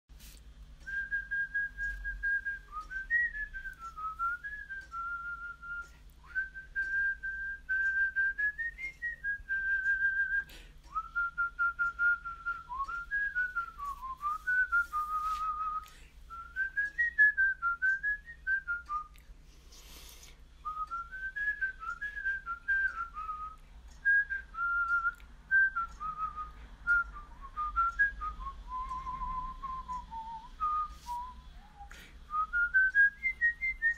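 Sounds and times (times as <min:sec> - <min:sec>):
faint low hum: 0:00.1 - 0:33.9
person whistling a melody: 0:00.8 - 0:33.9.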